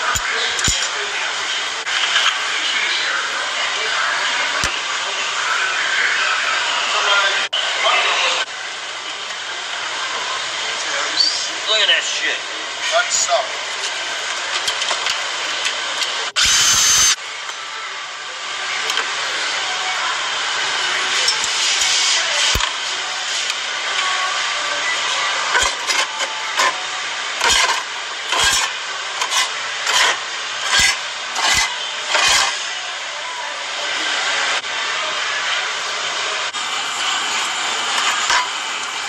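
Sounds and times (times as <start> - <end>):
scraping on sheet metal: 27.4 - 32.6
steady hiss: 36.0 - 39.0.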